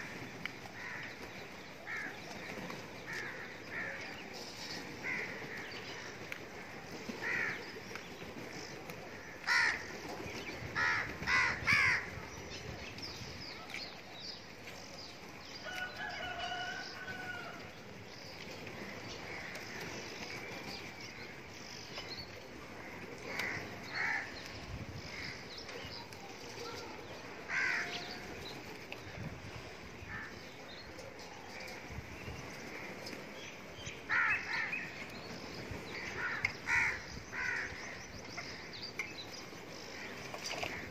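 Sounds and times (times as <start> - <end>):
crows cawing: 0.8 - 1.2, 1.8 - 2.2, 3.1 - 4.0, 5.0 - 6.1, 7.2 - 7.7, 9.2 - 9.9, 10.8 - 12.1, 23.4 - 24.3, 27.5 - 28.2, 34.1 - 34.9, 36.0 - 38.7.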